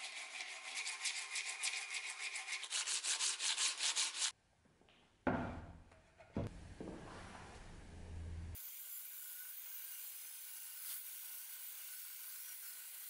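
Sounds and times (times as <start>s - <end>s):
band saw cutting wood: 8.6s - 13.0s.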